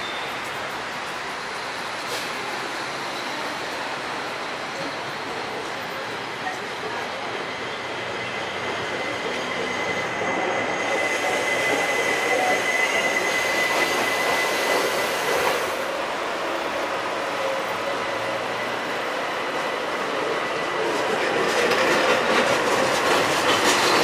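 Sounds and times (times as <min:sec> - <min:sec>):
train wheels on rails: 0:00.0 - 0:24.0
high-pitched wheel squeal: 0:07.8 - 0:15.3.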